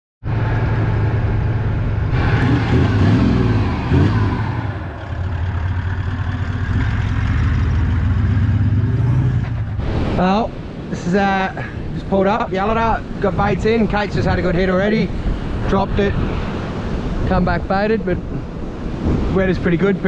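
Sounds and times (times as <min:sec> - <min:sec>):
car engine drone: 0:00.2 - 0:11.2.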